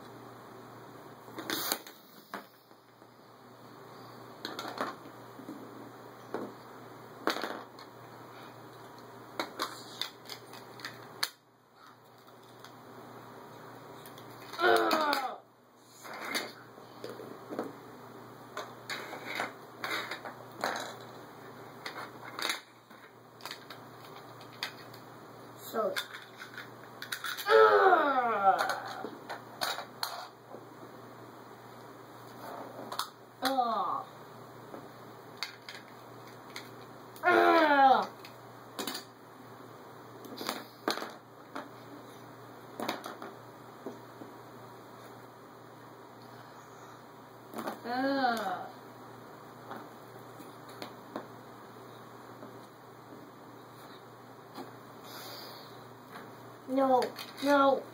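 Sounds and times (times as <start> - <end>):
plastic figures clicking and rustling: 4.4 - 5.1, 9.0 - 12.8, 14.0 - 15.3, 18.6 - 21.2, 21.8 - 25.0, 25.7 - 27.5, 28.6 - 30.4, 35.4 - 36.9, 38.0 - 39.1, 42.8 - 43.4, 56.1 - 57.8
child's falling vocal sound: 14.5 - 15.5, 27.4 - 29.1, 37.2 - 38.1.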